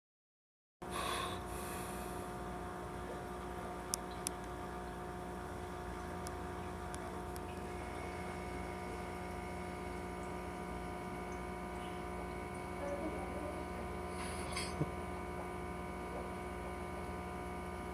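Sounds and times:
electrical equipment hum: 0.8s - 17.9s
higher electrical tone: 1.4s - 17.9s.

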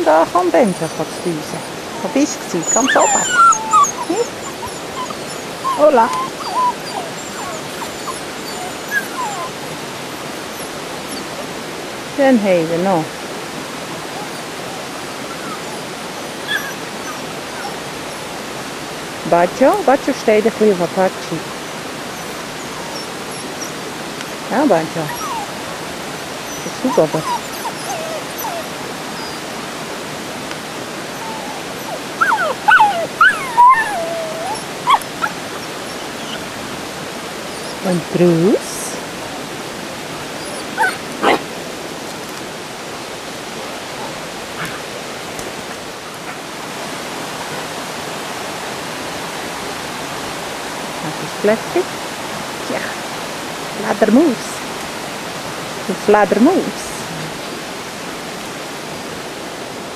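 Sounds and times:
puppies whimpering: 0.0s - 11.6s, 14.0s - 18.4s, 21.9s - 29.7s, 30.8s - 42.4s, 43.6s - 45.0s.

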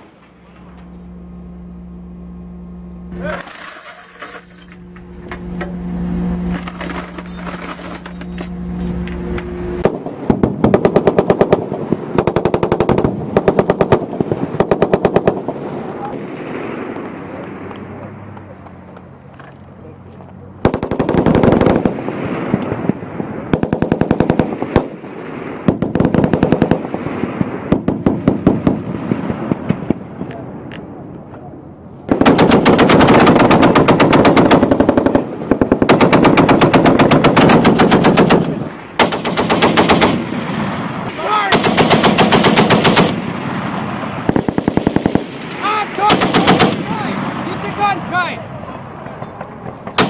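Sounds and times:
heavy machine gun bursts: 6.4s - 15.6s, 32.1s - 40.4s, 41.2s - 47.4s.

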